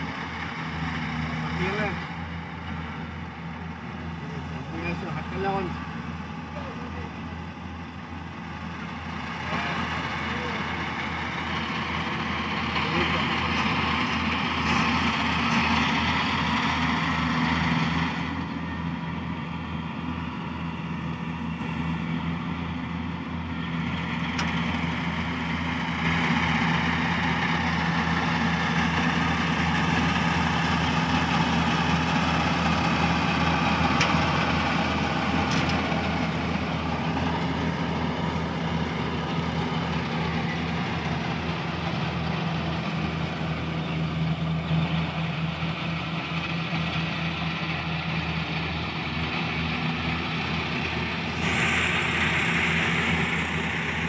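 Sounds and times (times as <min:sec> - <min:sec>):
diesel engine humming: 0:00.0 - 0:54.0
mechanical hiss of machinery: 0:51.3 - 0:54.0.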